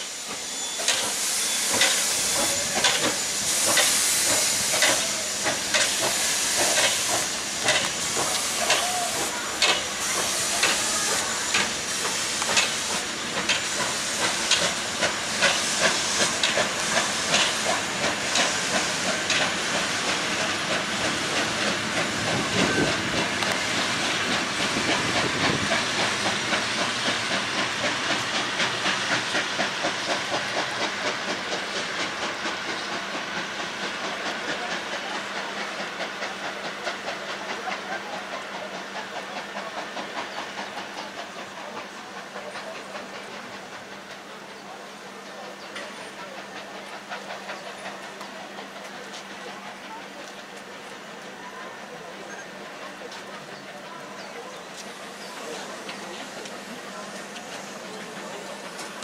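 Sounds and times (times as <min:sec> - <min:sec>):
steam hissing: 0:00.0 - 0:59.0
steam locomotive chuffing: 0:00.0 - 0:59.0.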